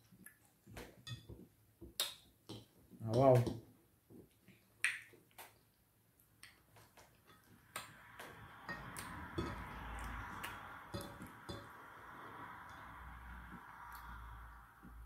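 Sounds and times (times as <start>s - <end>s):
wet eating clicks and smacks: 1.9s - 3.3s, 4.4s - 8.0s.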